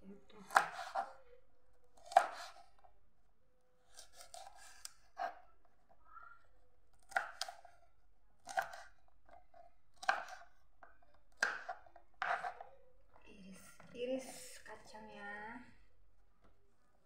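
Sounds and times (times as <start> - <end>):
knife chopping on plastic board: 0.4 - 1.2, 2.0 - 2.7, 7.0 - 7.8, 8.4 - 12.7.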